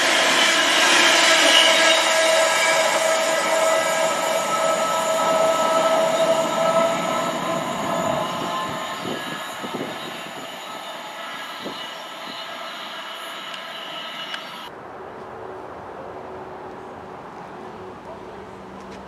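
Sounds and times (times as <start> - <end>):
train wheels rumbling on rail: 0.0 - 14.7
train wheels squealing: 0.0 - 14.7.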